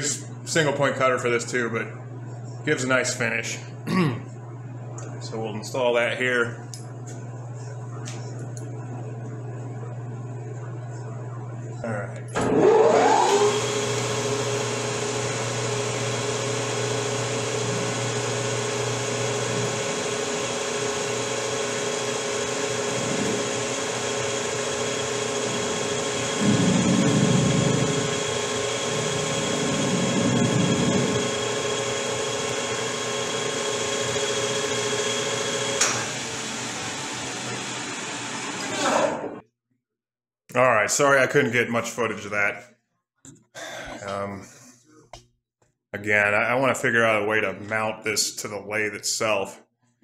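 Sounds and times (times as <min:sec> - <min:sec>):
metal lathe gear whine: 0:12.3 - 0:14.8, 0:18.8 - 0:36.8.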